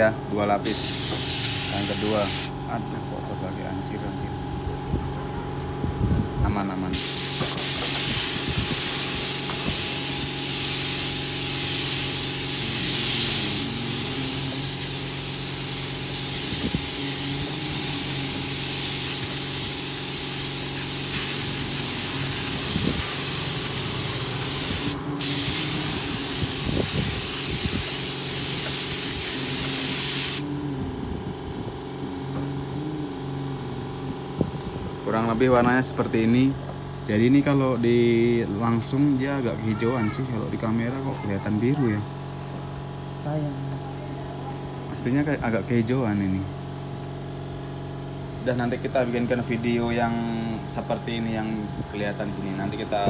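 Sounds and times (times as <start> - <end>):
steady mechanical hum: 0.0 - 53.0
spray gun hissing: 0.6 - 2.5, 6.9 - 30.5.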